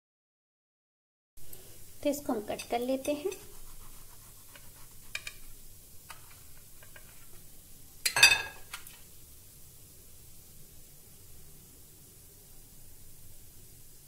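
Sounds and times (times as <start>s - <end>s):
metallic clatter on plate: 8.1s - 8.8s.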